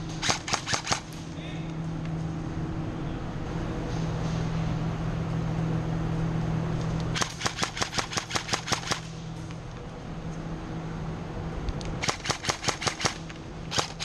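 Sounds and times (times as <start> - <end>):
low hum: 0.0 - 14.0
rapid airsoft gun shots: 0.2 - 1.2, 7.2 - 9.1, 12.0 - 14.0.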